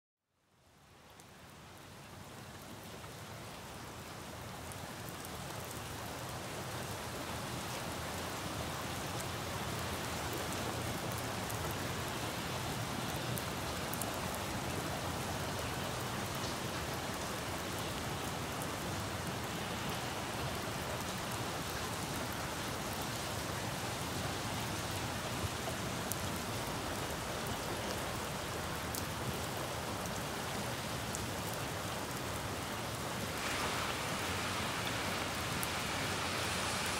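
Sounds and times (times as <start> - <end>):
rain on leaves and pavement: 0.5 - 36.9.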